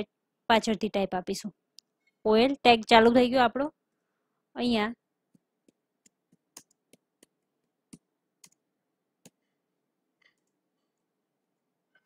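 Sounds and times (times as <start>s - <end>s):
keyboard keys typing: 5.3s - 8.6s.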